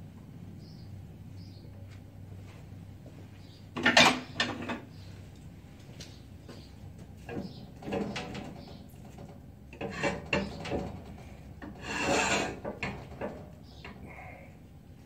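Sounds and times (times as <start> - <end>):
wooden spoon scraping a pot: 9.8 - 10.6, 11.6 - 13.1.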